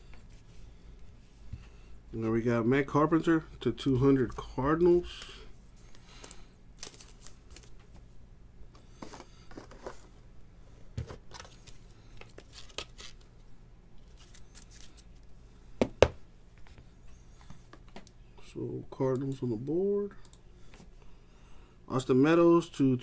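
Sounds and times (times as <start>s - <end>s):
plastic sleeve rustling and crinkling: 6.8s - 7.9s.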